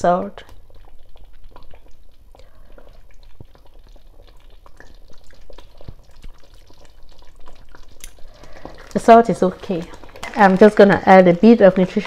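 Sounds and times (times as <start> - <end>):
mouth smacking and clicking: 0.4 - 8.9.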